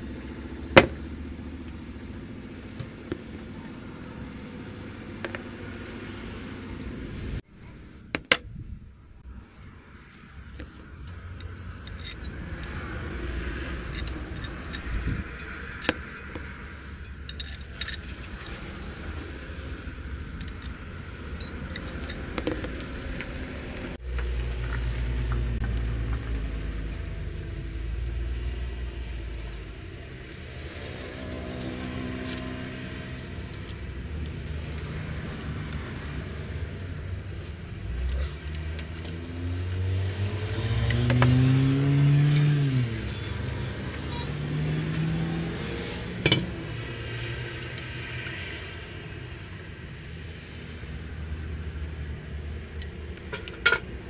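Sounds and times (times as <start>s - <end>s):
metal tools clinking: 10.1s - 18.6s, 20.3s - 20.8s, 21.4s - 23.1s, 31.2s - 36.5s, 37.2s - 45.0s, 46.2s - 48.5s, 52.7s - 53.9s.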